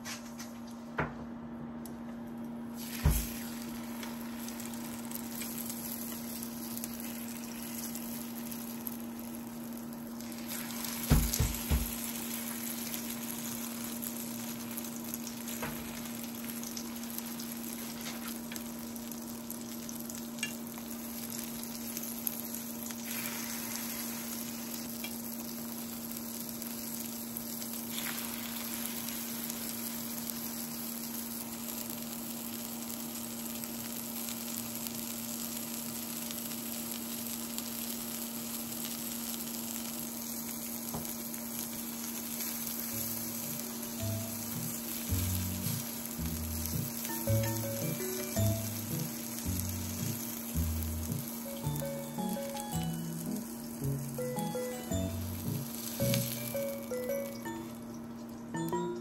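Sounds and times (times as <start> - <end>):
meat sizzling in oil: 2.8 - 58.7
low hum: 42.8 - 58.0.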